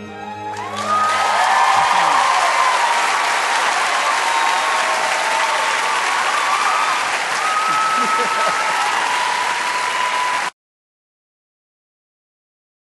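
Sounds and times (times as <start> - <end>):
audience applauding: 0.3 - 10.6.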